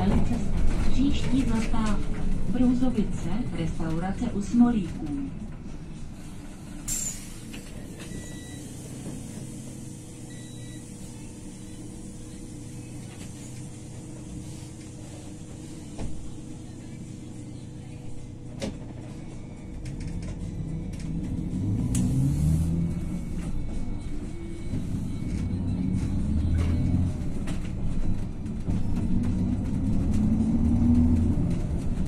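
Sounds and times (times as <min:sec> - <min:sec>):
bus engine humming: 0:00.0 - 0:32.0
faint beeps: 0:10.2 - 0:12.1.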